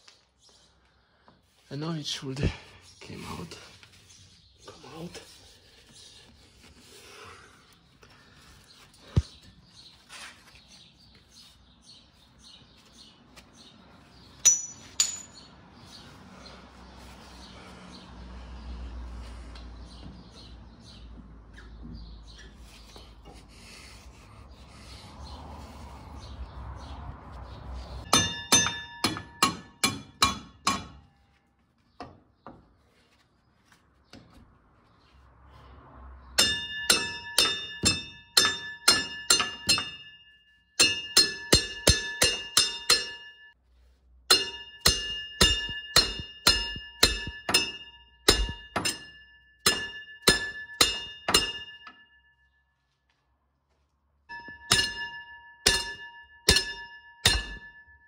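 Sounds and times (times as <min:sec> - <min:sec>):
hammer striking steel bolt: 0:28.1 - 0:31.1, 0:36.4 - 0:40.1, 0:40.8 - 0:43.4, 0:44.3 - 0:52.0, 0:54.3 - 0:57.8.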